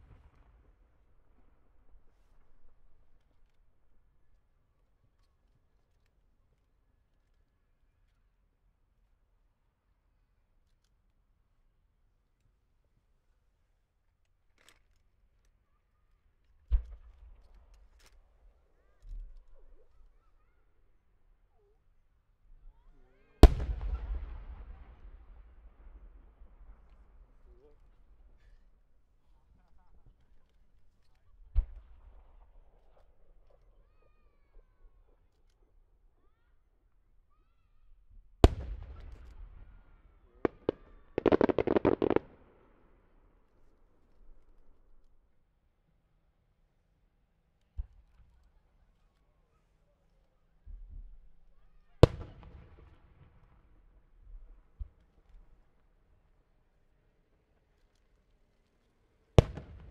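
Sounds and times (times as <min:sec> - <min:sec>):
rapid crackling pops: 0:40.5 - 0:42.4
sharp cracks: 0:40.5 - 0:42.6.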